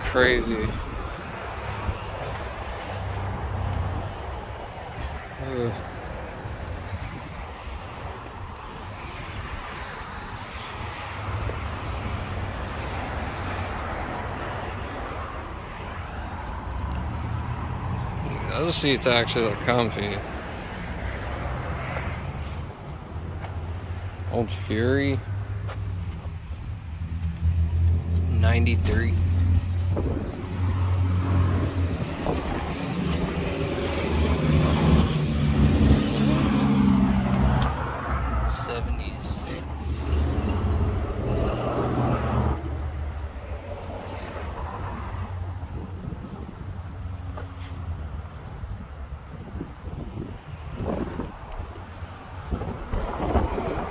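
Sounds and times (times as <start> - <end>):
steady low rumble: 27.4 - 34.2.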